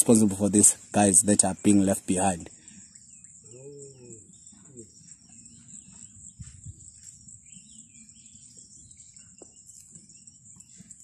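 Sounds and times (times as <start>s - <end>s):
high-pitched insect buzz: 2.6s - 11.0s.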